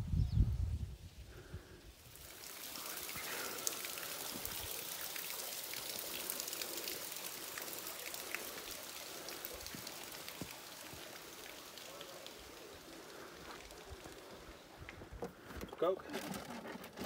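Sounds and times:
waterfall splashing on rock: 2.1s - 14.5s.

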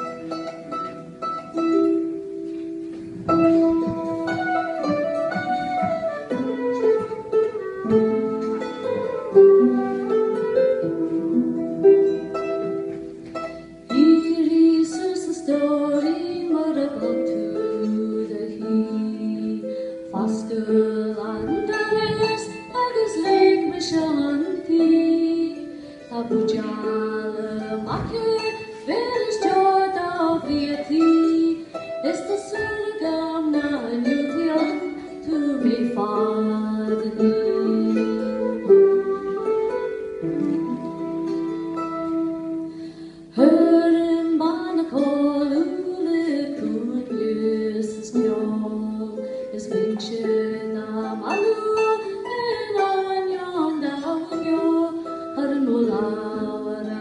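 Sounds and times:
flute melody: 0.0s - 13.6s, 37.5s - 42.8s
harp plucking: 0.0s - 57.0s
woman singing: 13.9s - 39.4s, 43.3s - 57.0s.

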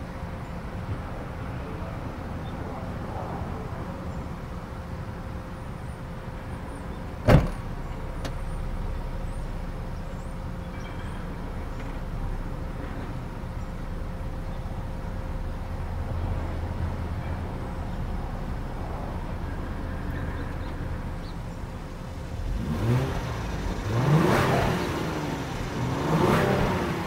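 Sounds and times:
car engine idling: 0.0s - 27.0s
liftgate closing with thud: 7.2s - 8.4s.

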